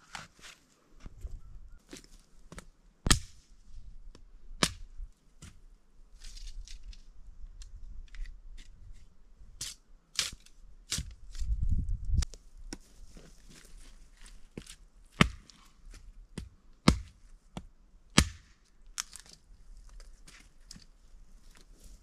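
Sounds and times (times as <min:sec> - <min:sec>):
machete chopping wood: 0:15.2 - 0:15.6, 0:16.4 - 0:17.2, 0:18.2 - 0:18.5.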